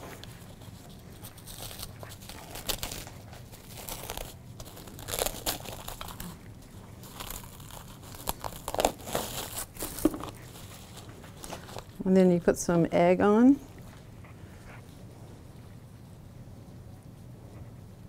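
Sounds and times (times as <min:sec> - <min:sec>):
plastic crinkling: 0:00.0 - 0:12.2.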